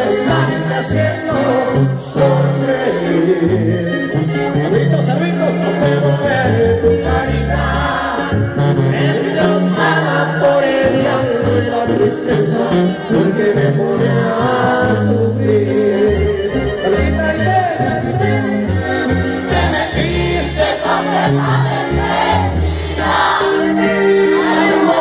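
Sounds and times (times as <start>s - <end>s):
person singing: 0.0s - 17.8s
live band music: 0.0s - 25.0s.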